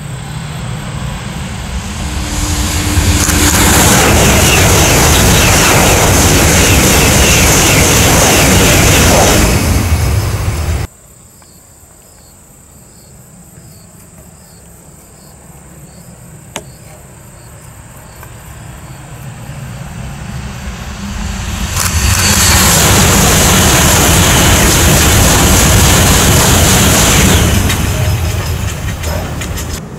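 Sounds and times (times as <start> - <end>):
high-speed train rushing past: 0.0 - 10.9, 17.1 - 29.9
faint insect chirping: 10.9 - 20.8.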